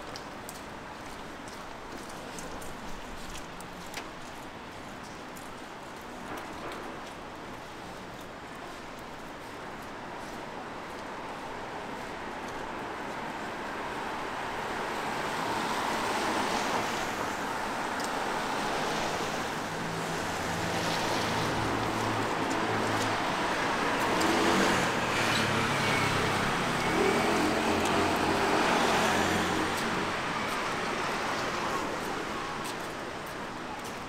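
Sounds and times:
tyres hissing on wet road: 0:05.6 - 0:34.0.

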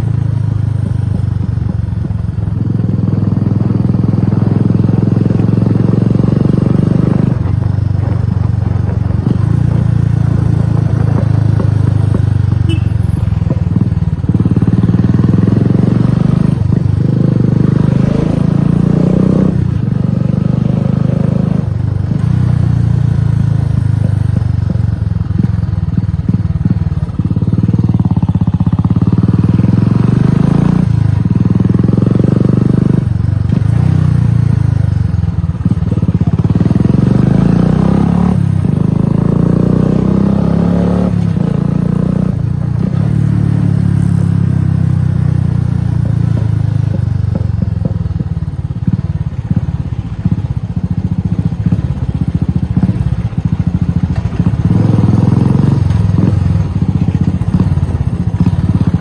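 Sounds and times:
motorcycle exhaust note: 0:00.0 - 0:59.0.

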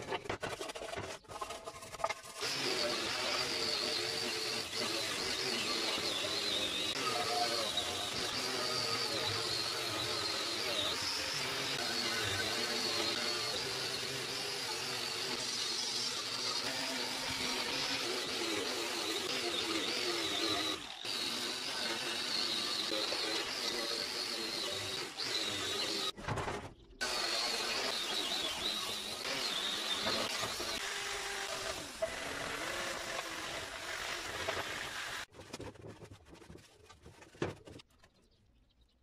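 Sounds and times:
angle grinder wire brush scraping: 0:00.0 - 0:26.2.

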